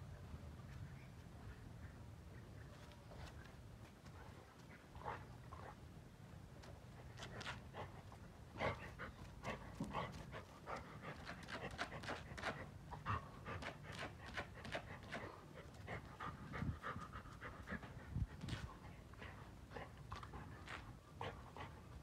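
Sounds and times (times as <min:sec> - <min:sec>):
dog panting: 0:07.0 - 0:22.0.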